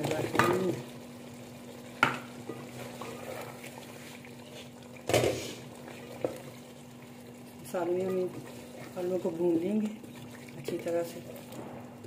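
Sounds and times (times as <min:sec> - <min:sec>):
faint steady hum: 0:00.0 - 0:12.0
knock on metal cooking pot: 0:02.0 - 0:02.3
wooden spatula stirring thick food: 0:05.4 - 0:11.6.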